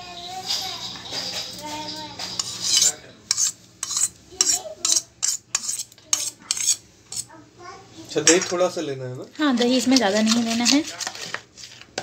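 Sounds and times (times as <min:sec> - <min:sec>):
metal spoon scraping steel bowl: 0:02.2 - 0:07.3, 0:09.5 - 0:12.0.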